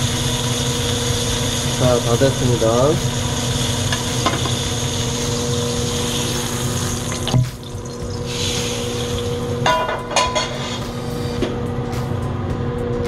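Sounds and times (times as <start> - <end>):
steak sizzling in oil: 0.0 - 9.8.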